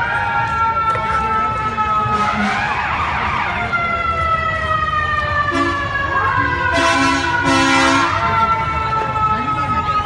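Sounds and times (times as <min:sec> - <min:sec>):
fire truck siren winding down: 0:00.0 - 0:10.0
wailing siren: 0:00.0 - 0:10.0
fire truck horn blasts: 0:02.1 - 0:02.6, 0:05.5 - 0:05.9, 0:06.7 - 0:08.3.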